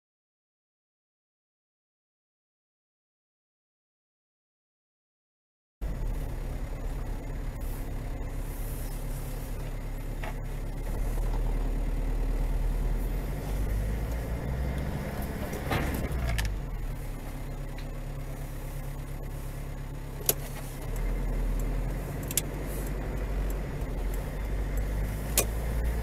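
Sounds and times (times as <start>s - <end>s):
car engine and road drone: 5.8s - 26.0s
car crash impacts: 14.3s - 16.9s.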